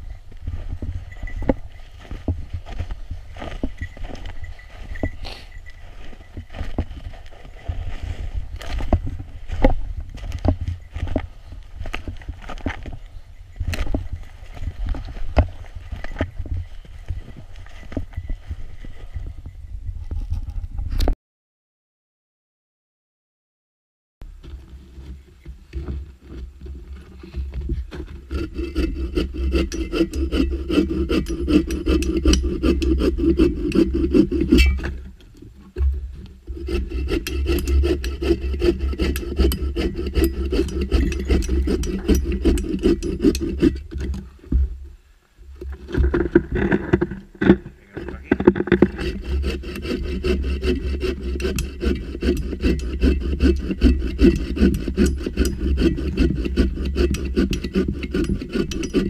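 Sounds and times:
saw cutting log: 28.0s - 35.1s, 36.4s - 44.3s, 47.4s - 59.0s.

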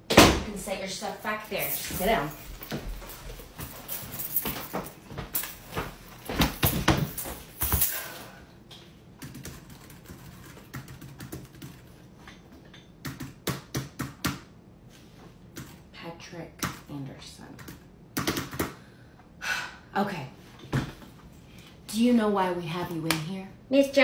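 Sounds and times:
knocks and thumps: 5.2s - 7.9s
keyboard typing: 9.2s - 12.0s.

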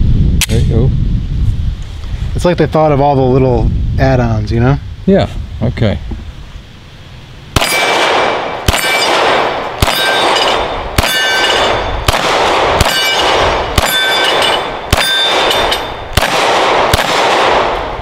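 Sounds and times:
pistol shots: 7.6s - 18.0s
bullets clanging on steel targets: 8.7s - 12.0s, 12.8s - 16.2s.

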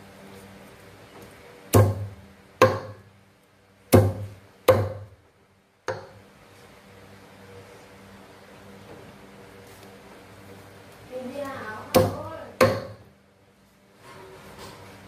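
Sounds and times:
cleaver chopping on wooden block: 1.7s - 3.1s, 3.9s - 5.1s, 5.9s - 6.2s, 11.9s - 13.0s.

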